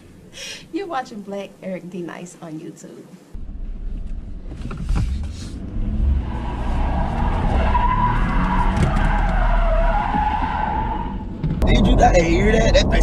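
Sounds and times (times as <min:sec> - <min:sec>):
car engine and road rumble: 0:00.0 - 0:00.8, 0:03.3 - 0:13.0
tires squealing: 0:05.0 - 0:13.0.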